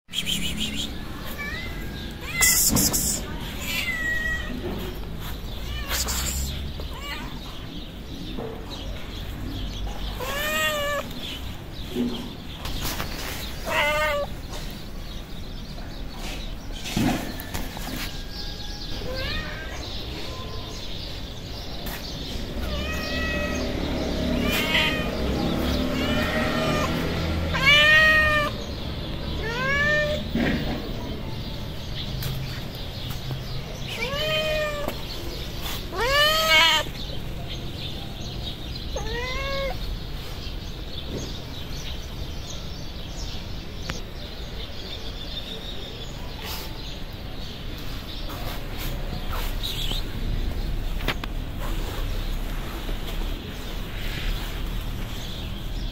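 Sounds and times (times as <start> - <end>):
cat meowing: 0.8 - 4.9, 5.6 - 7.7, 10.1 - 11.3, 13.6 - 14.4, 18.9 - 19.9, 22.5 - 28.6, 29.4 - 30.3, 33.9 - 35.1, 35.9 - 37.0, 38.9 - 39.9.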